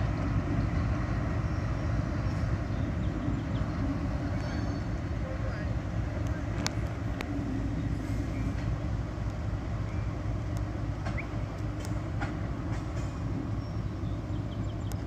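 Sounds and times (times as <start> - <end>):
diesel locomotive rumbling: 0.0 - 15.0
sharp clicks of rolling cars: 6.1 - 7.4, 10.3 - 13.4.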